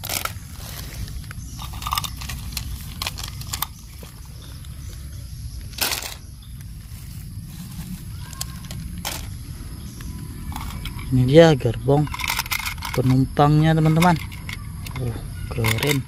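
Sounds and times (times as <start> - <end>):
plastic track pieces clattering: 0.0 - 0.8, 1.6 - 3.8, 5.8 - 6.2, 8.3 - 9.3, 12.0 - 16.0
leaves rustling: 0.0 - 16.0
steady low rumble: 0.0 - 16.0.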